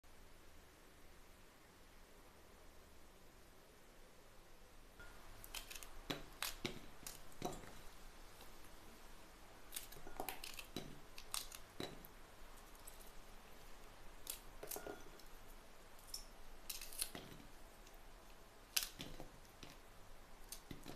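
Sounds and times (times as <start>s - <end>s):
peppers snapping: 5.4s - 7.4s, 9.7s - 12.1s, 14.2s - 15.3s, 16.0s - 18.0s, 18.7s - 19.8s
pieces dropping into glass bowl: 14.6s - 15.3s.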